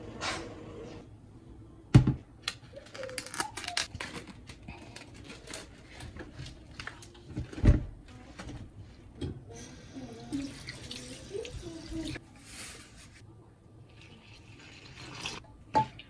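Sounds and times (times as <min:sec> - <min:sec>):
plastic packet tearing: 0:02.7 - 0:05.8.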